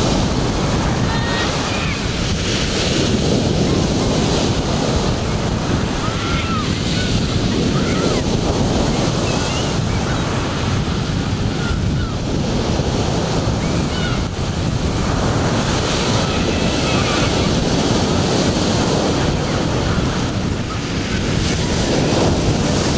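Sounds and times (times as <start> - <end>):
ocean surf breaking: 0.0 - 22.9
wind buffeting microphone: 0.0 - 22.9.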